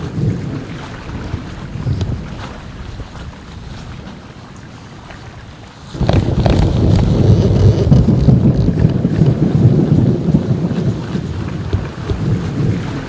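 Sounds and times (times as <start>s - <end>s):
rolling thunder rumble: 0.0s - 13.0s.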